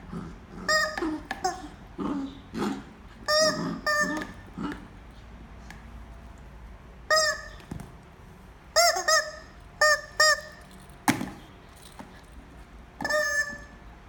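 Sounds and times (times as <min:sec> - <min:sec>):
rubber chicken toy squawking: 0:00.6 - 0:01.8, 0:03.2 - 0:04.5, 0:07.1 - 0:07.7, 0:08.7 - 0:10.6, 0:13.0 - 0:13.8.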